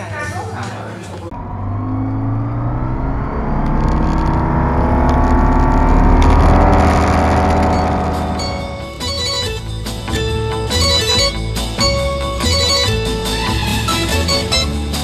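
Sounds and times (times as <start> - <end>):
aircraft engine and propeller: 1.3 - 9.3.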